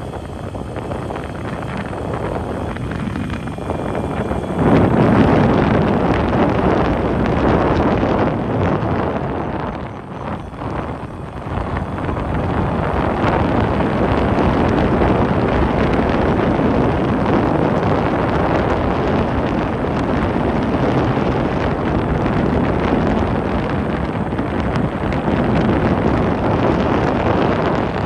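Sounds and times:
road noise: 0:00.0 - 0:28.0
wind buffeting microphone: 0:00.0 - 0:28.0.

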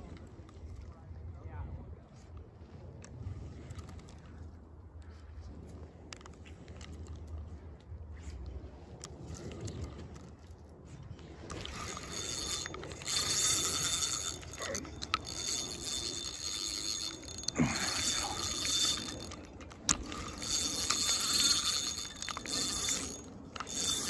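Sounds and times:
fishing reel drag buzzing: 0:11.4 - 0:24.0
sharp reel clicks: 0:11.5 - 0:24.0.

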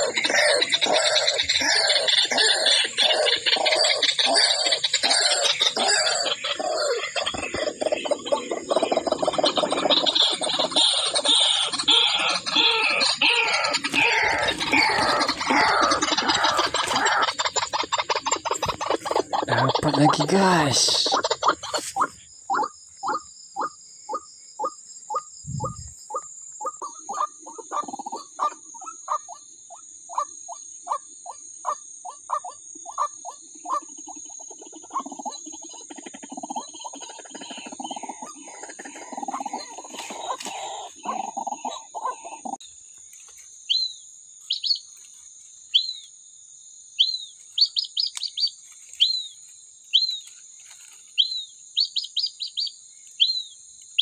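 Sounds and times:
waterhen kwak calls: 0:00.0 - 0:29.4
bird chirps: 0:00.0 - 0:46.1, 0:47.0 - 0:54.0.

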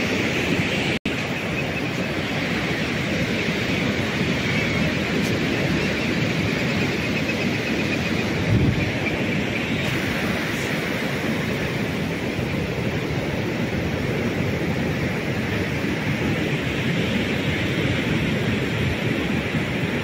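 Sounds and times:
ocean surf breaking: 0:00.0 - 0:20.0
wind on the microphone: 0:00.0 - 0:20.0.

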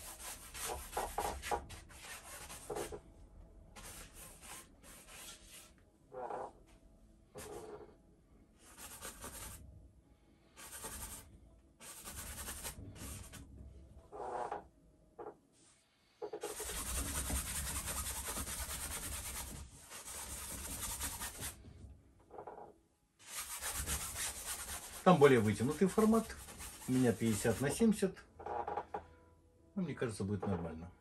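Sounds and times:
brush scrubbing paint on canvas: 0:00.0 - 0:03.0, 0:03.8 - 0:05.7, 0:16.4 - 0:21.6, 0:23.2 - 0:27.8.

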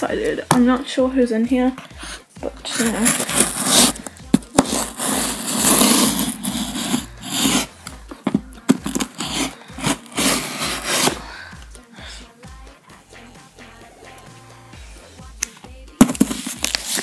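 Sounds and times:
paper parcel scraped and torn: 0:02.7 - 0:07.7, 0:08.8 - 0:11.2, 0:16.1 - 0:17.0.

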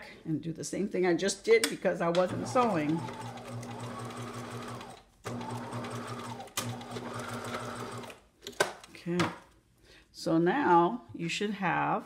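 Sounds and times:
sewing machine stitching: 0:02.3 - 0:08.2.

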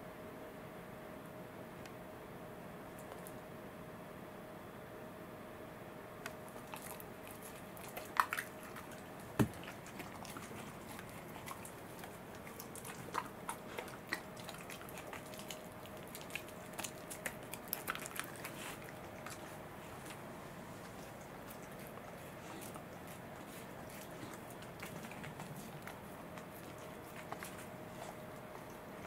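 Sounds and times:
dog biting snaps: 0:06.3 - 0:20.2
dog chewing mouth clicks: 0:06.3 - 0:29.0.

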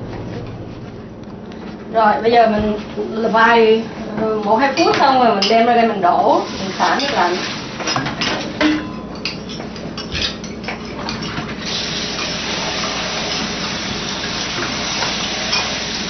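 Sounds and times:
pot clanks: 0:07.0 - 0:11.5
tap running: 0:11.6 - 0:16.0.

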